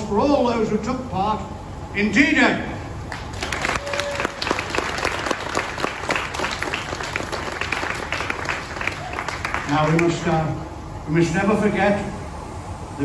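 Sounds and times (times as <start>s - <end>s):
crowd applauding: 3.1s - 10.3s.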